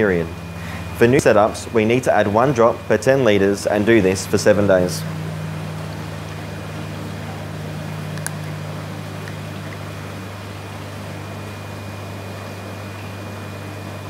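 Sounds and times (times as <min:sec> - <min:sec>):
low hum of equipment: 0:00.0 - 0:14.0
small click: 0:08.1 - 0:08.5.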